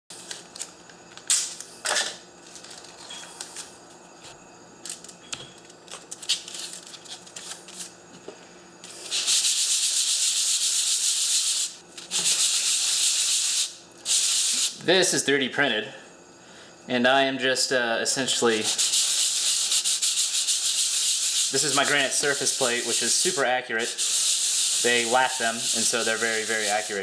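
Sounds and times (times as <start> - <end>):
sandpaper and tape rustling: 9.0 - 14.8, 18.5 - 27.0
plastic rubbing on sandpaper: 18.5 - 27.0.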